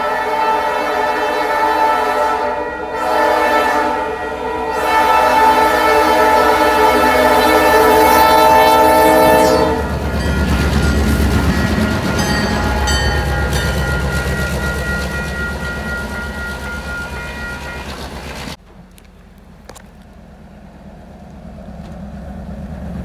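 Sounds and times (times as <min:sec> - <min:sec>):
locomotive air horn chord: 0:00.0 - 0:18.6
train rumbling past: 0:00.0 - 0:23.0
train clicks: 0:06.6 - 0:20.3.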